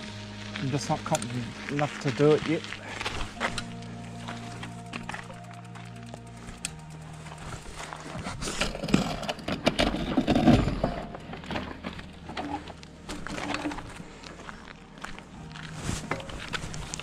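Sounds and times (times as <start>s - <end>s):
clicks and rattles: 8.4s - 14.0s.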